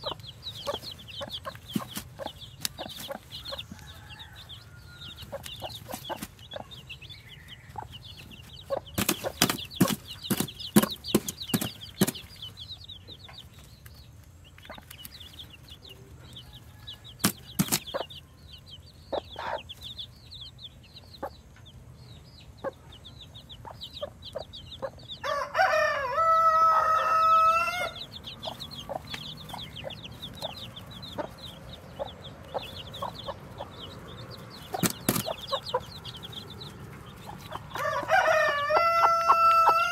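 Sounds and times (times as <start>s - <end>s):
chicks peeping: 0.0s - 39.9s
hen clucking: 0.0s - 39.9s
rooster crowing: 3.4s - 5.4s, 25.2s - 28.0s, 37.7s - 39.9s.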